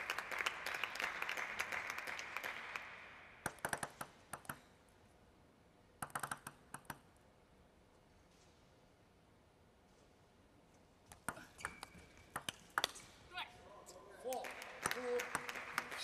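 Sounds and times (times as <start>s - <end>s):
applause: 0.0s - 3.9s, 14.3s - 16.0s
table tennis ball bouncing: 11.1s - 13.0s.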